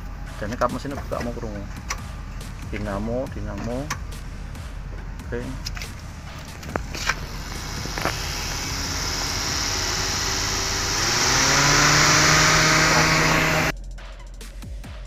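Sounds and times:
fan motor hum: 5.9 - 13.7.

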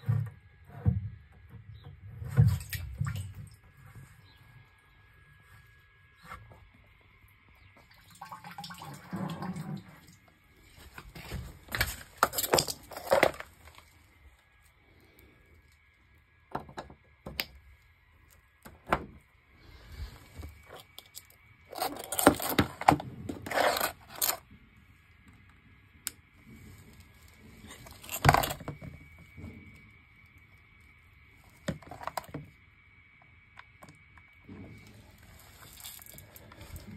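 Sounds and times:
handling scrapes and clatters: 10.7 - 14.0, 20.0 - 24.4, 26.5 - 28.8, 34.5 - 36.9.

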